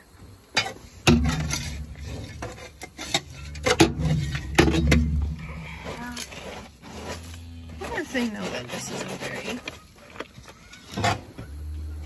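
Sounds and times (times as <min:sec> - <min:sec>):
shovel clanking on metal: 0:00.6 - 0:05.4
shovel scraping metal: 0:00.6 - 0:11.3.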